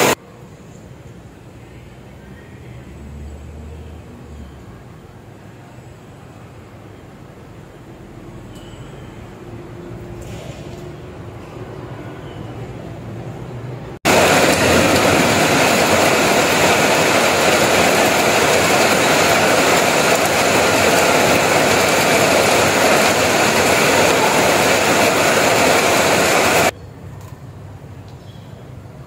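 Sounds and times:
heavy rain on metal roof: 14.0 - 26.7.

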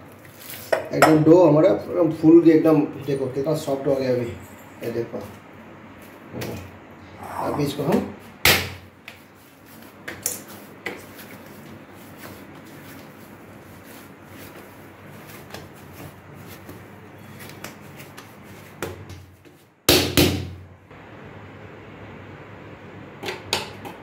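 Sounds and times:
dough kneaded by hand: 5.1 - 20.9
hands slapping dough: 7.9 - 20.7.

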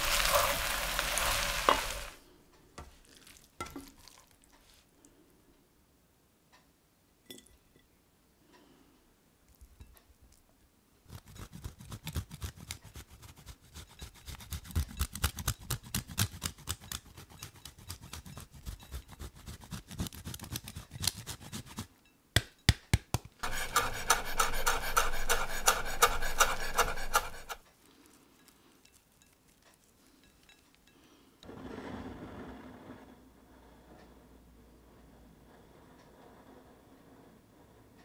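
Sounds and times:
cheese grating on a grater: 11.1 - 21.9, 23.4 - 27.6
steady grinding rasp: 23.4 - 27.6.

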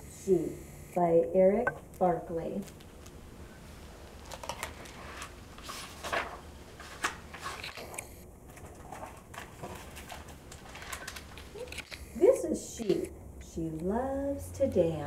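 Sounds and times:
book pages turning: 4.2 - 12.0.

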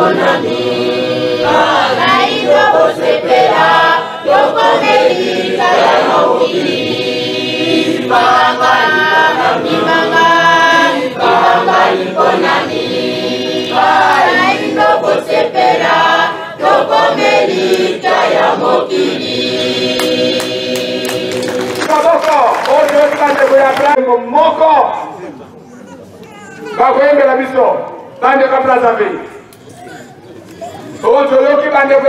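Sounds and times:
choir singing: 0.0 - 21.9.

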